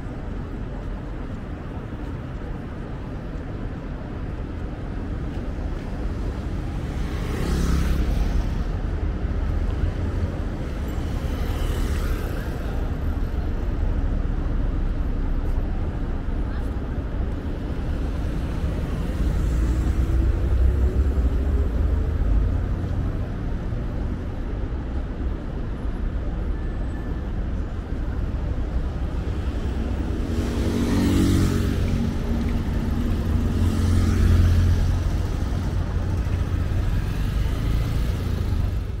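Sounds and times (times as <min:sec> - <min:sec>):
steady low traffic rumble: 0:00.0 - 0:39.0
cars driving past: 0:06.5 - 0:13.1, 0:28.5 - 0:39.0
loud vehicle passing: 0:29.6 - 0:39.0.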